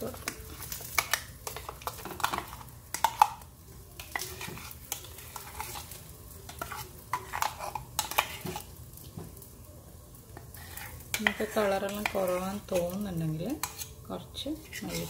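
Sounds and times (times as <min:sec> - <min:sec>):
utensil scraping cookware: 0:04.0 - 0:08.7, 0:10.4 - 0:15.0.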